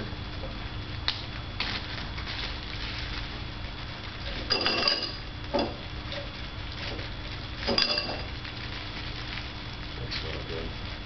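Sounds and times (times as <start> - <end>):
ice cubes clinking into glass: 7.7 - 8.3.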